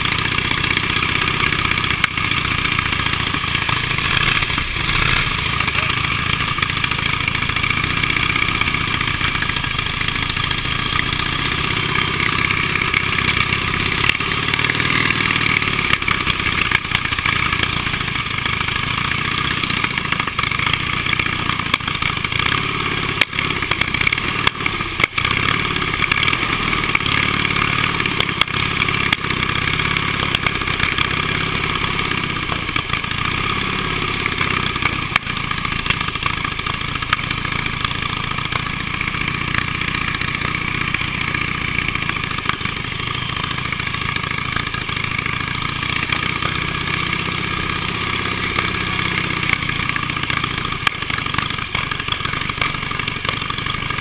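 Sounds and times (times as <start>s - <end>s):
motorcycle engines idling: 0.0s - 54.0s.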